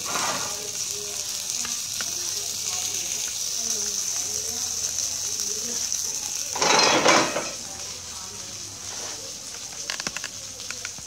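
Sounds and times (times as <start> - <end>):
stove clattering and scraping: 0.0 - 0.9, 6.3 - 7.9, 8.8 - 10.8.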